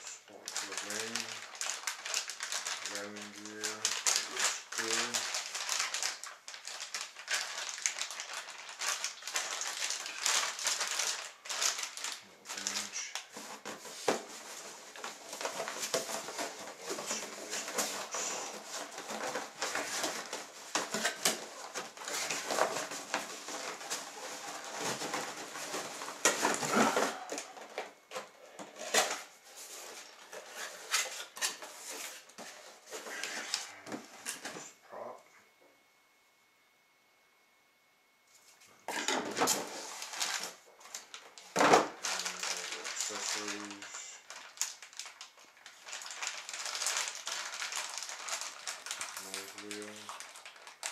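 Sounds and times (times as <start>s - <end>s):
plastic bag crinkling: 0.0s - 28.1s, 28.8s - 33.8s, 38.9s - 50.9s
cardboard rustling and knocking: 13.3s - 27.2s.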